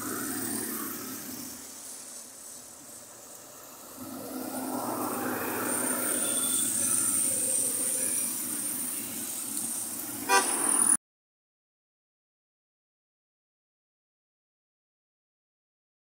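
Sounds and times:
motorcycles passing: 0.0 - 11.0
thin high whine: 0.0 - 11.0.

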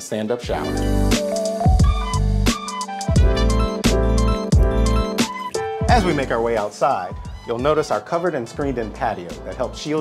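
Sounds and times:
sustained instrumental chords: 0.5 - 6.8
steady drum beat: 0.5 - 8.0.

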